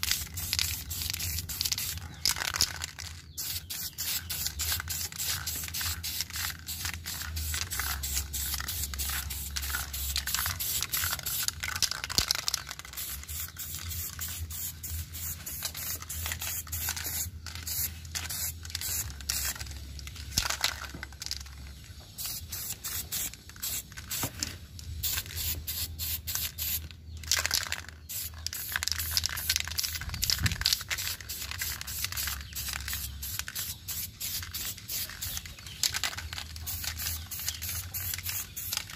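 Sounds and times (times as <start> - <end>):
spray can hissing in bursts: 0.0 - 19.7, 22.1 - 26.9, 28.0 - 38.9.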